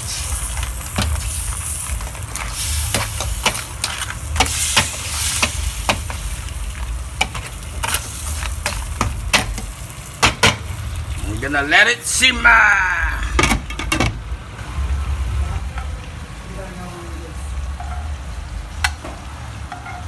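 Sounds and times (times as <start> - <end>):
crabs sizzling in a wok: 0.0 - 11.9, 12.5 - 20.0
spatula scraping a pan: 0.9 - 6.2.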